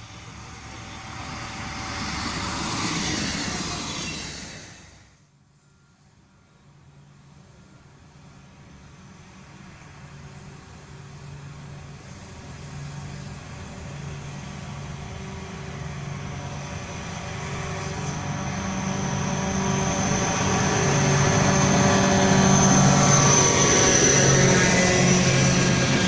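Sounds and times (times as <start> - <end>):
high whine of wagons: 0.0 - 5.2, 10.9 - 26.0
rail and wheel noise: 0.0 - 26.0
train engine drone: 0.0 - 26.0.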